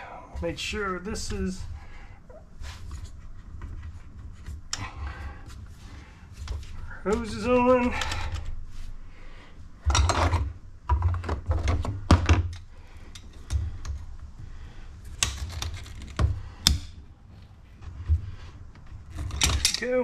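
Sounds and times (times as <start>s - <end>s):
clicks and knocks of hose clamps: 19.1s - 19.9s.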